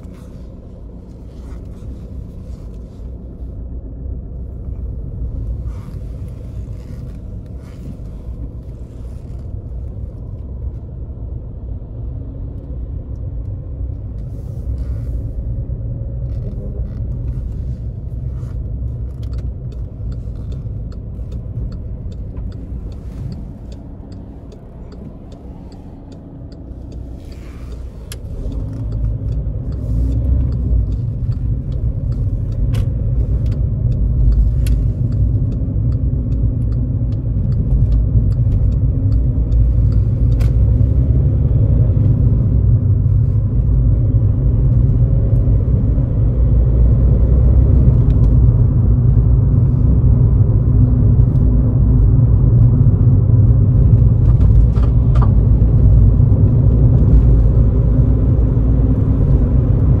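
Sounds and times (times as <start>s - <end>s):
diesel car engine running: 0.0s - 60.0s
tyre and road rumble: 0.0s - 60.0s.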